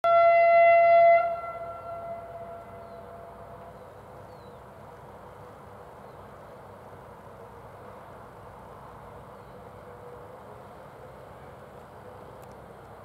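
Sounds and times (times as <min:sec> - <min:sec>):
locomotive horn blast: 0:00.0 - 0:03.7.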